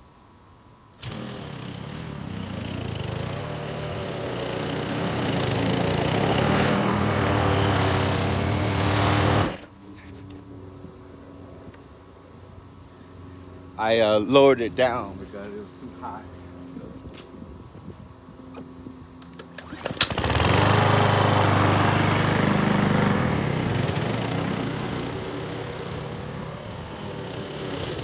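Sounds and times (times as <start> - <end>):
lawn mower engine running: 1.0 - 10.2, 18.5 - 28.0.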